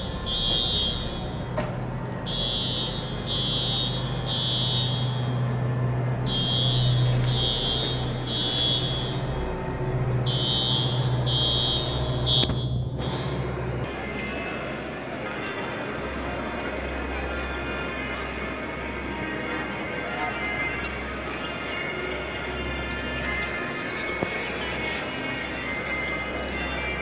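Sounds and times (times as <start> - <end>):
electronic warning beeper: 0.0 - 1.4, 2.3 - 5.6, 6.2 - 9.6, 10.2 - 13.4
low engine hum: 0.0 - 15.2.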